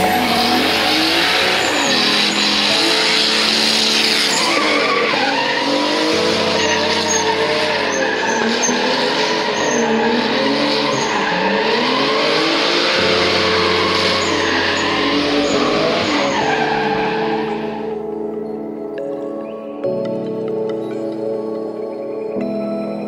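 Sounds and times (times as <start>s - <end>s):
car engine revving: 0.0s - 18.0s
tyres squealing: 0.0s - 18.0s.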